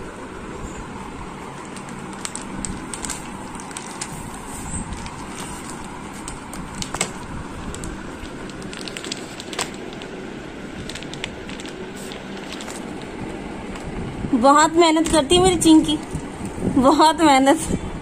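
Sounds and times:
plastic wrapper crinkling: 1.4 - 14.0.

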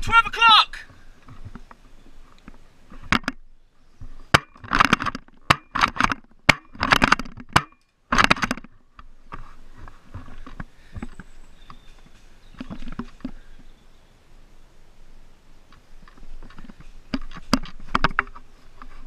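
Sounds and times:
rustling of movement: 0.8 - 19.0.

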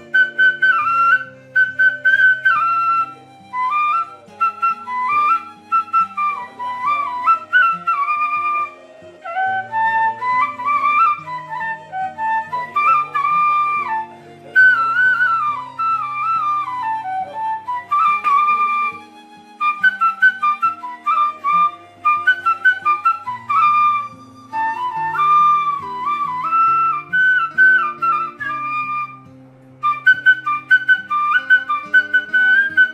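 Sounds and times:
bamboo flute melody: 0.0 - 32.9.

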